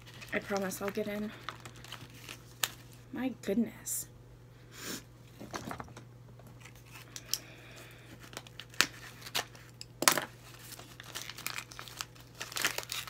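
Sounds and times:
gift wrap crinkling and tearing: 0.0s - 3.0s, 6.6s - 13.0s
low steady hum: 0.0s - 13.0s.

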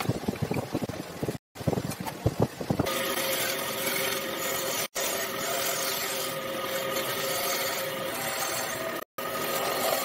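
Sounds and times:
power tool rasping wood: 2.8s - 10.0s.

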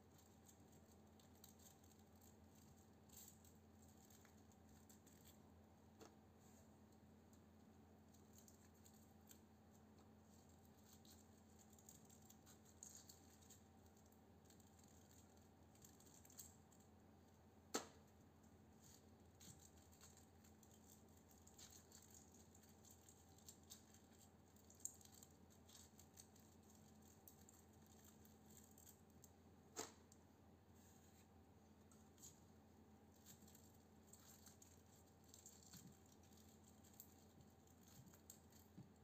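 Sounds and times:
low steady hum: 0.0s - 39.0s
wire rustling and ticking: 31.2s - 39.0s.

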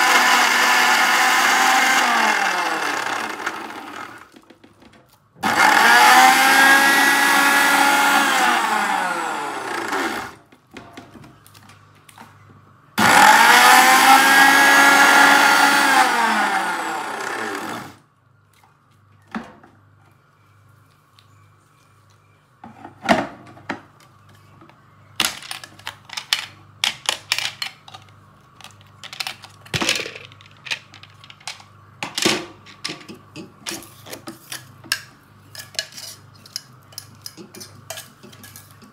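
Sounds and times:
electric blender grinding: 0.0s - 4.3s, 5.4s - 10.4s, 13.0s - 18.0s.

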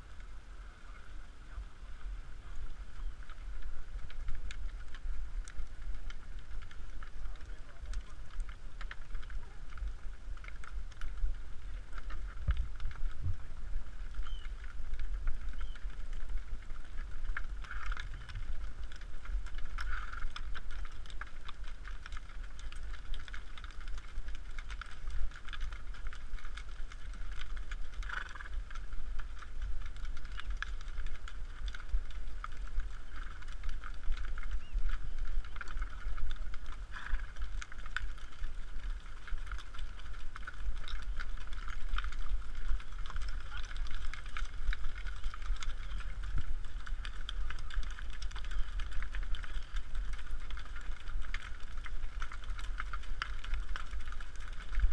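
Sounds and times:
horse hooves on sand: 0.0s - 54.9s
wind rumble on microphone: 0.0s - 54.9s.

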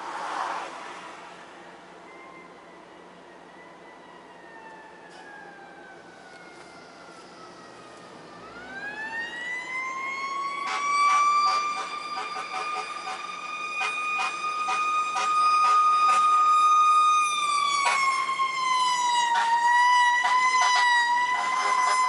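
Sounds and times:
fire truck siren wailing: 1.4s - 22.0s
short siren blasts: 2.0s - 22.0s.

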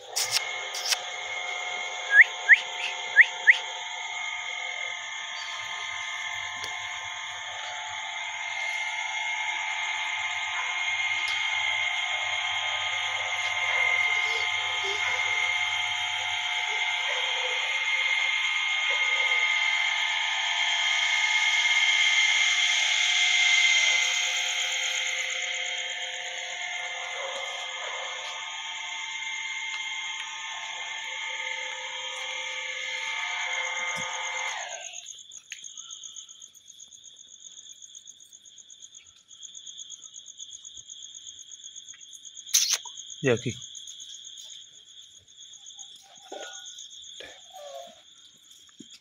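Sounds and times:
steady high drone: 0.0s - 35.1s
shrill chorus of night insects: 0.0s - 49.0s
short rising whistles: 2.1s - 3.8s.

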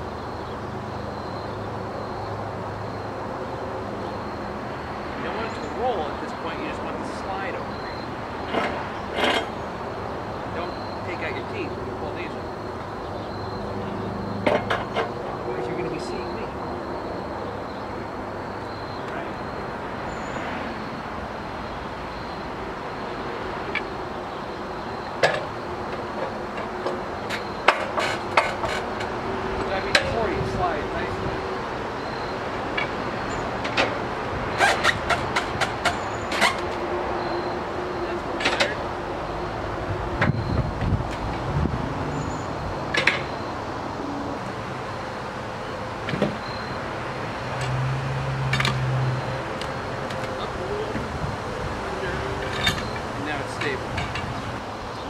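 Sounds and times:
steady background hiss: 0.0s - 34.0s
metal clanks on log and steel: 8.4s - 9.6s, 14.4s - 15.2s, 25.2s - 30.2s, 38.3s - 38.8s, 42.9s - 43.4s, 48.5s - 48.8s, 52.2s - 54.6s.

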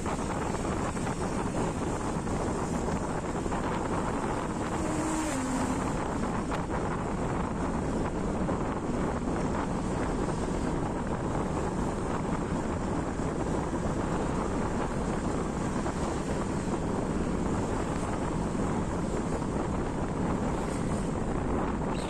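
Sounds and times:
motorcycle engine and tyres: 0.0s - 22.0s
wind rushing over microphone: 0.0s - 22.0s.

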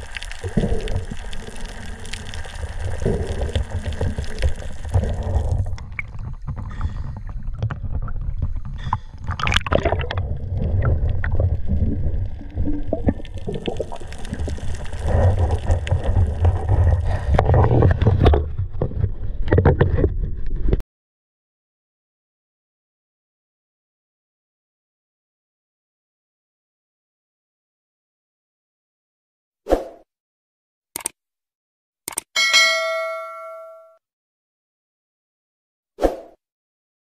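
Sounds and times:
underwater churning rumble: 0.0s - 20.7s
small underwater clicks and knocks: 0.0s - 20.8s.

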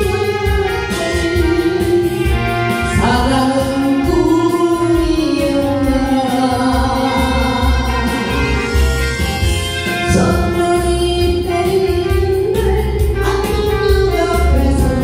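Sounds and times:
woman singing: 0.0s - 8.9s, 9.9s - 15.0s
instrumental music with bass beat: 0.0s - 15.0s.

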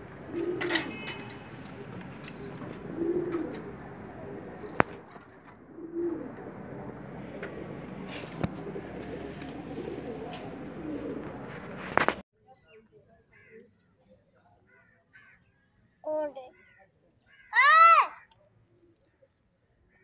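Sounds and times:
pigeon cooing: 0.0s - 12.0s.

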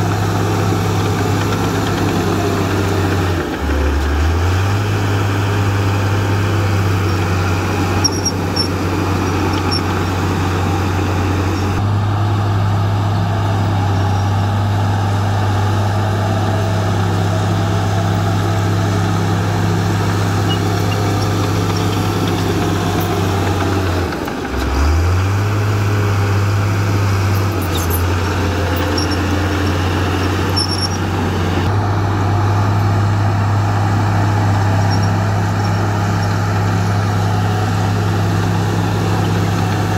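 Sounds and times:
bulldozer diesel engine running: 0.0s - 39.9s
blade pushing soil: 13.0s - 39.9s.

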